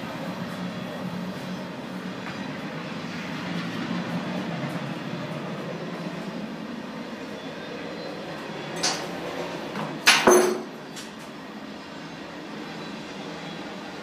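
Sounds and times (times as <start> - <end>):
sharp metallic clank ringing: 10.1 - 10.7.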